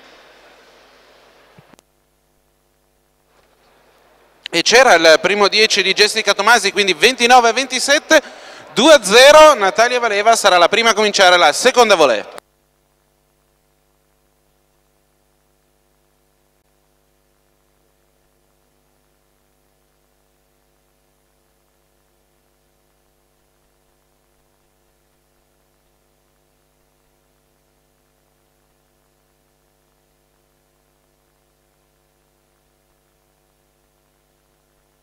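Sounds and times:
faint electrical hum with hiss: 0.0s - 35.0s.

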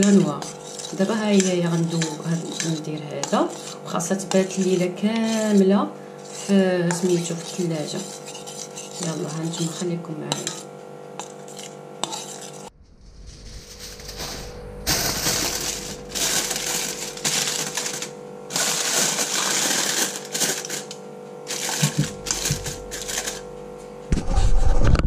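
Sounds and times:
aluminium foil crinkling: 13.4s - 23.5s.

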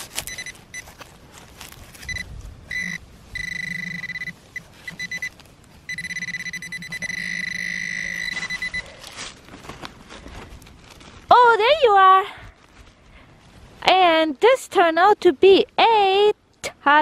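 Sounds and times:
scraping of soil: 0.0s - 3.0s
pinpointer beeping: 0.3s - 0.8s, 2.0s - 8.9s.

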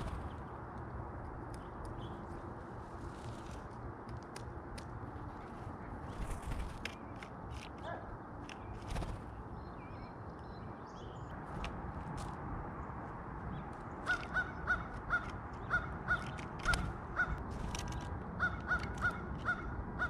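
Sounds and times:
bird wings fluttering: 0.0s - 0.5s, 6.0s - 7.3s, 8.4s - 9.4s, 16.6s - 18.1s
rushing background noise: 0.0s - 10.3s
sharp ticks and clicks: 0.5s - 2.3s, 3.7s - 5.2s, 14.1s - 19.6s.

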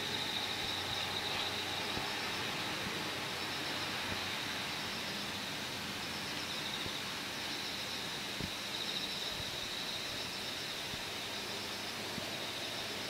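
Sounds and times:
steady hiss: 0.0s - 13.0s.

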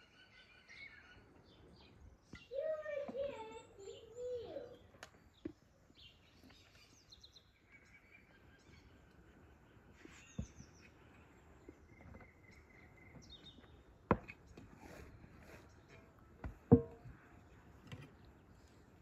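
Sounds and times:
faint bird chirps: 0.0s - 16.1s
soft knocks: 16.4s - 17.2s.

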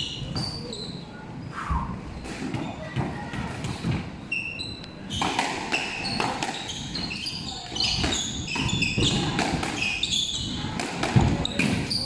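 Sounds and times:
shoes squeaking on wooden floor: 3.8s - 12.0s
squash ball knocks: 10.7s - 11.9s.

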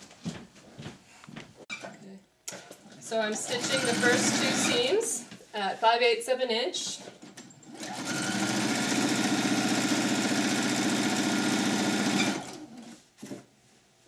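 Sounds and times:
sewing machine stitching: 2.5s - 5.0s, 7.1s - 13.0s.

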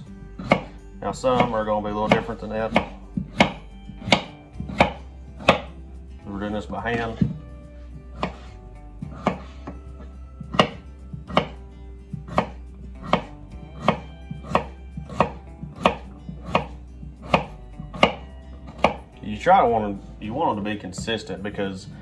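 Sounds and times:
knife chopping on wooden board: 0.4s - 5.8s, 8.1s - 9.8s, 10.4s - 11.6s, 12.2s - 19.1s.

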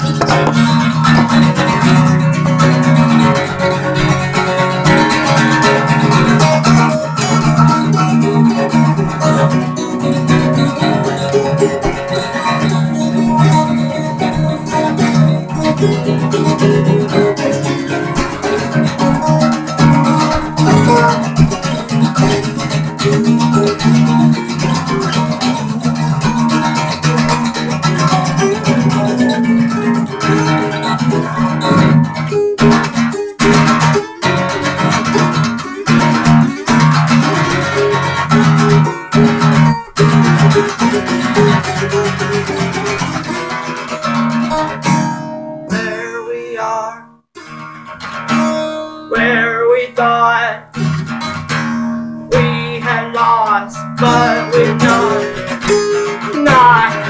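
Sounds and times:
acoustic guitars strummed and picked: 0.0s - 57.0s.

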